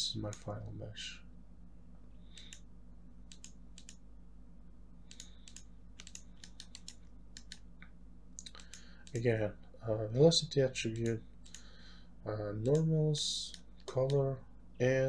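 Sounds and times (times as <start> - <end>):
low electrical hum: 0.0 - 15.0
keyboard and mouse clicks: 2.3 - 2.7, 3.3 - 4.0, 5.1 - 9.3, 10.9 - 11.7, 12.6 - 12.9, 13.5 - 14.2.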